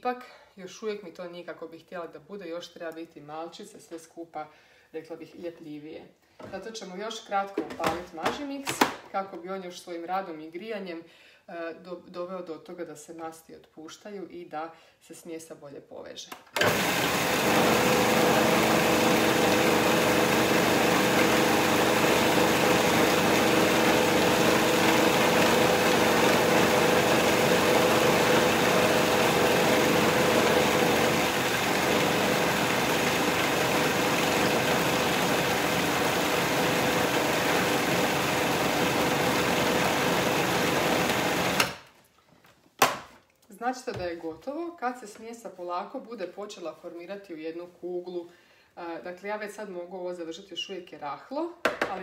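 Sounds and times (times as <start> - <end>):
food processor motor running: 16.6 - 41.8.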